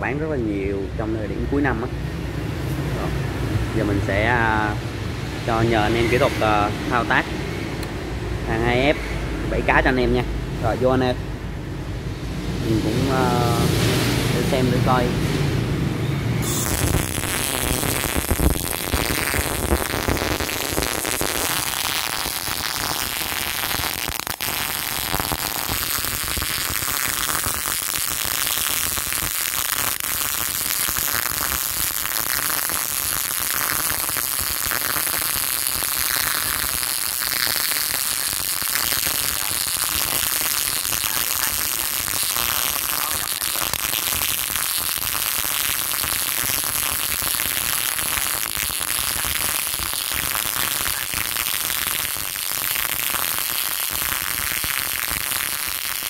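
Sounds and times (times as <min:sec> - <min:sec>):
welding arc crackling hiss: 0:16.4 - 0:56.0.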